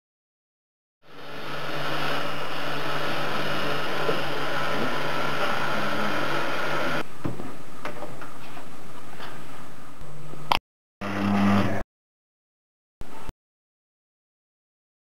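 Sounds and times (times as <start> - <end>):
machine hum and hiss: 1.1 - 11.8.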